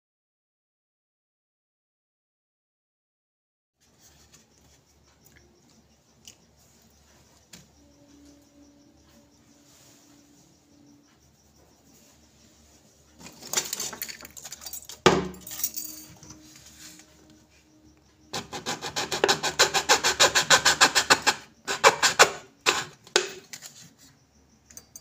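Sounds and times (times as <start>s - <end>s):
hacksaw cutting plastic bottle: 18.4s - 23.4s.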